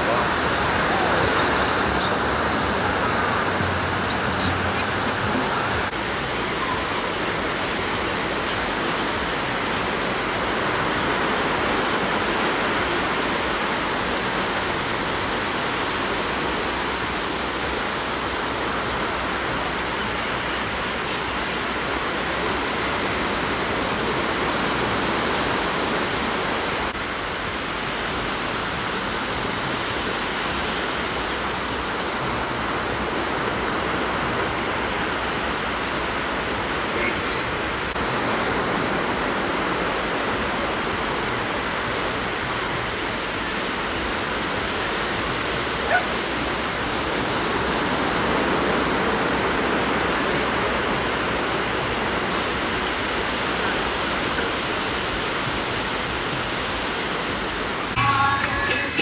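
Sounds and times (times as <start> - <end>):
ocean surf washing onto beach: 0.0 - 58.9.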